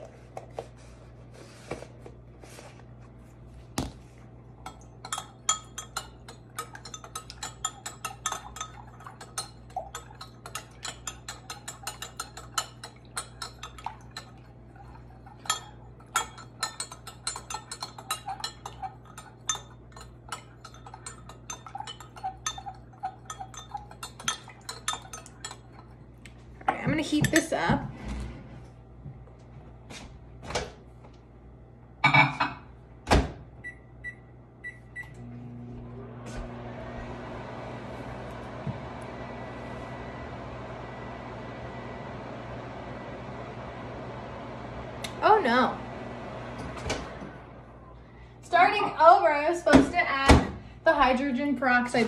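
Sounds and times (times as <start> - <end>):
spoon clinking against glass: 4.7 - 14.4, 15.4 - 25.9.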